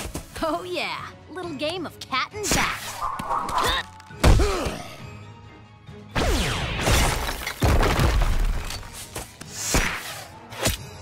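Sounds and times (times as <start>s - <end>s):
cartoon action music: 2.5s - 5.0s, 6.1s - 7.1s
falling sweeps: 2.8s - 3.9s.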